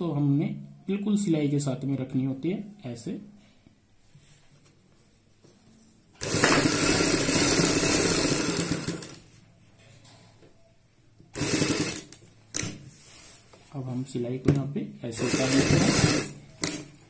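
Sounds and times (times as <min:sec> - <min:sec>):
sewing machine stitching: 0:06.2 - 0:09.2, 0:11.4 - 0:12.2, 0:15.2 - 0:16.9.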